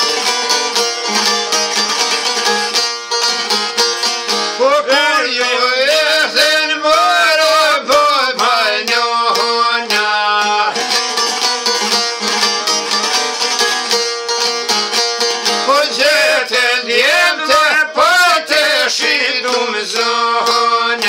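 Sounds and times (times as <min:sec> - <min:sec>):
strummed lutes: 0:00.0 - 0:21.0
man singing: 0:04.6 - 0:11.0, 0:15.6 - 0:21.0.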